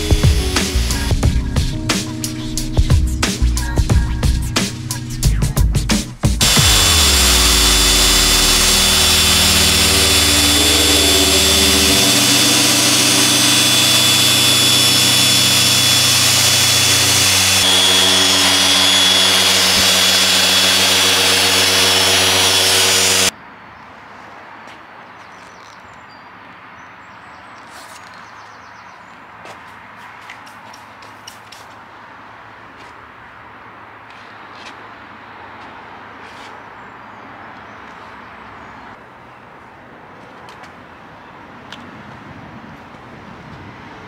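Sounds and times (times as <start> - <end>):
orbital polisher whirring: 0.0 - 1.4, 6.4 - 23.3.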